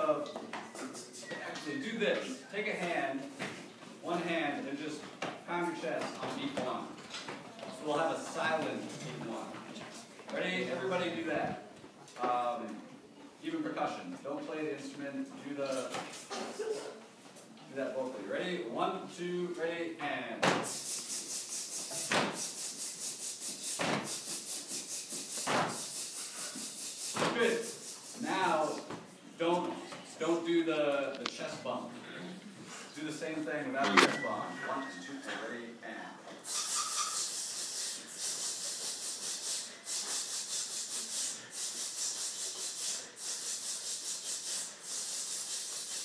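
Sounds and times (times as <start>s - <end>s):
group making rhythmic hissing: 0.6s - 1.3s, 15.9s - 17.0s, 20.6s - 28.9s, 36.4s - 46.0s.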